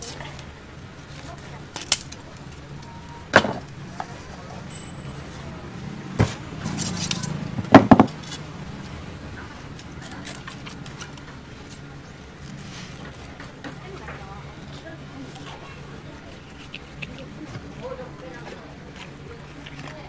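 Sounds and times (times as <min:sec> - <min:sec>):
low steady hum: 0:00.0 - 0:20.0
metal clinks: 0:04.6 - 0:05.4
knife and tools knocking: 0:06.2 - 0:08.9.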